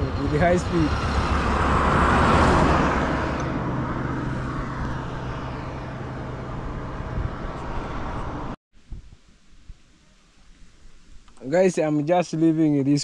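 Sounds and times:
cars passing close by: 0:00.0 - 0:08.6
low engine hum: 0:00.0 - 0:08.6.

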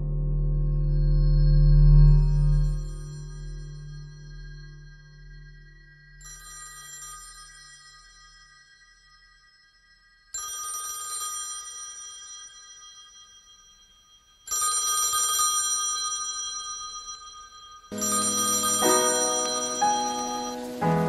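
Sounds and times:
bell-like ringing tone: 0:02.9 - 0:21.0
low-pitched music: 0:17.9 - 0:21.0.

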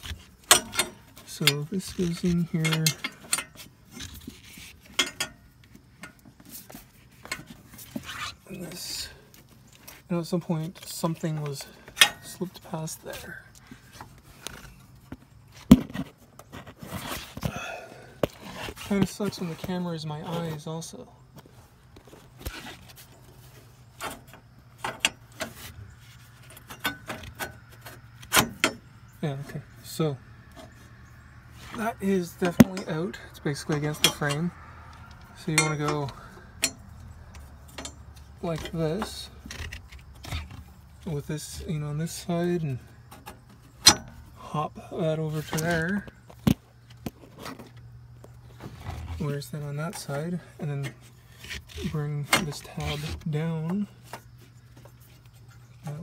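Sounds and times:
light metal clicks and knocks: 0:00.0 - 0:06.4, 0:10.8 - 0:12.4, 0:24.0 - 0:25.7, 0:26.4 - 0:28.9, 0:32.3 - 0:41.1, 0:43.0 - 0:44.4
light metallic clicks and scrapes: 0:00.0 - 0:17.5, 0:18.2 - 0:44.4, 0:45.3 - 0:56.0.

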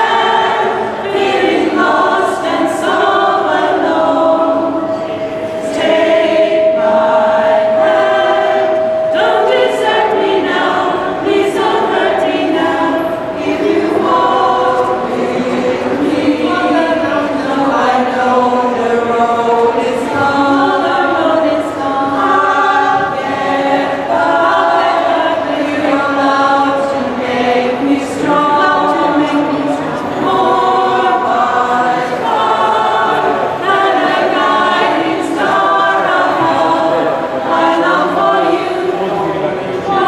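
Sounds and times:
choir singing in harmony: 0:00.0 - 0:40.0.

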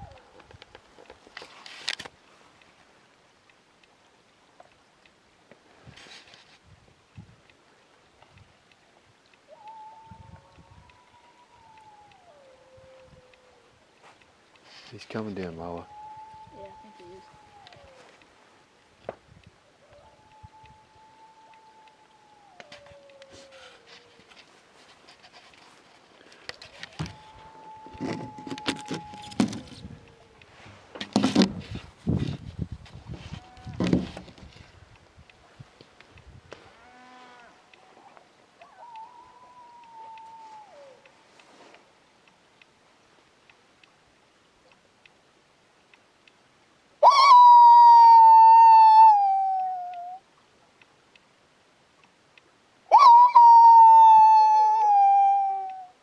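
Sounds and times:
faint ticks: 0:00.0 - 0:46.9, 0:49.5 - 0:52.8
person howling like a wild dog: 0:09.5 - 0:13.7, 0:15.8 - 0:18.1, 0:19.8 - 0:24.2, 0:26.8 - 0:30.5, 0:37.9 - 0:41.1, 0:47.0 - 0:50.2, 0:52.9 - 0:56.0.

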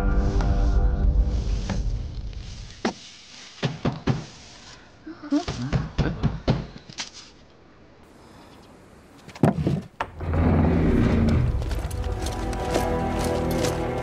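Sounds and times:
low rumble: 0:00.0 - 0:02.8.

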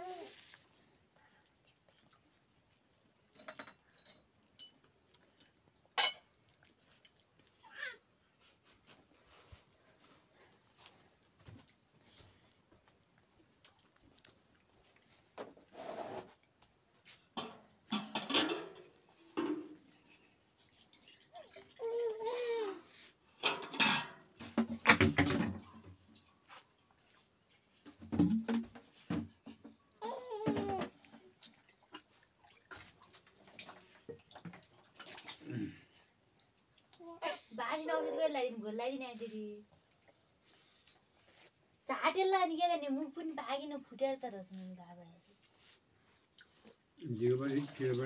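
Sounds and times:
baby cooing: 0:30.0 - 0:30.9.

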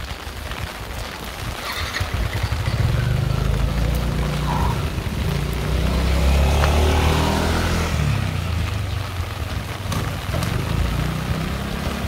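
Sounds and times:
rain falling: 0:00.0 - 0:12.0
vehicle engine running: 0:02.6 - 0:12.0.

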